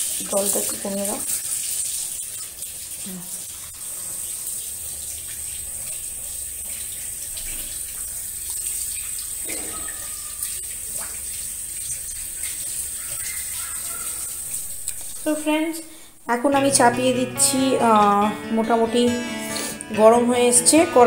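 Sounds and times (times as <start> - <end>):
tap water running into sink: 0.0 - 15.3.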